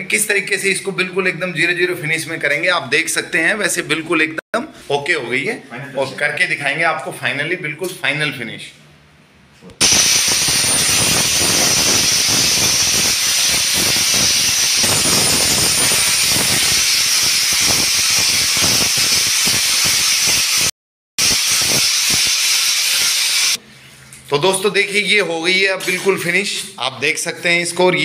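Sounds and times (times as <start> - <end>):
angle grinder grinding stone: 9.8 - 23.6.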